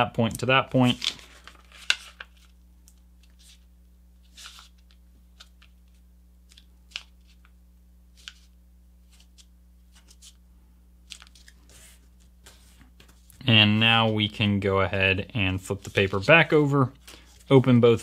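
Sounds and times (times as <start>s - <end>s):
low steady hum: 0.0s - 18.0s
paper rustling as folded: 0.8s - 2.6s, 3.2s - 7.5s, 11.0s - 13.4s.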